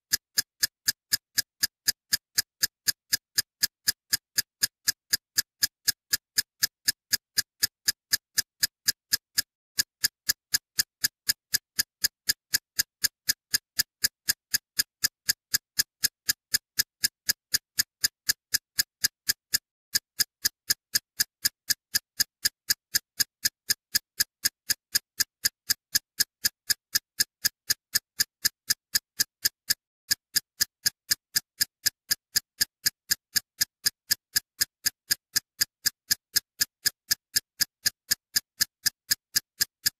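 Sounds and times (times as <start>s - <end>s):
sharp even ticks: 0.1s - 39.9s.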